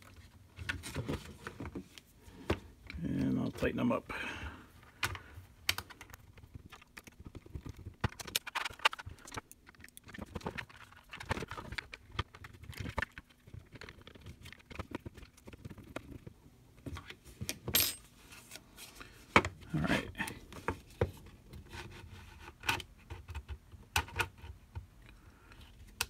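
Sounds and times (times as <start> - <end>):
tools clicking and scraping plastic: 4.8 - 16.3.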